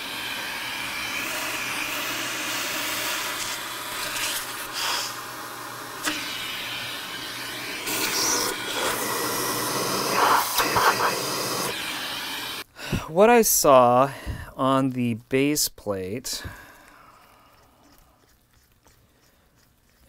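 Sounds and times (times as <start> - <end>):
vacuum cleaner running: 0.0 - 12.7.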